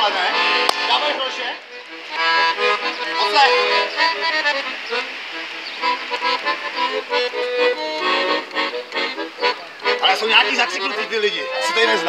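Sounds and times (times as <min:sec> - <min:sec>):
accordion playing chords and melody: 0:00.0 - 0:12.0.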